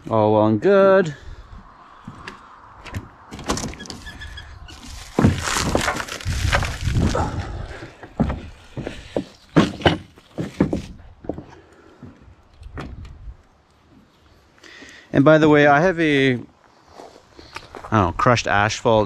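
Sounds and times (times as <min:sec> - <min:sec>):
sharp knocks and thuds: 0:02.1 - 0:04.0, 0:04.9 - 0:07.2, 0:07.8 - 0:13.1
plastic wrap crinkling: 0:04.7 - 0:07.5
cardboard rustling: 0:04.7 - 0:11.0.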